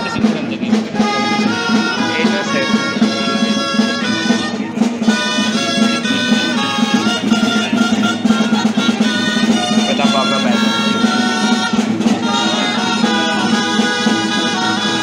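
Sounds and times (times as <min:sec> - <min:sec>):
wind instruments playing lively melody: 0:00.0 - 0:15.0.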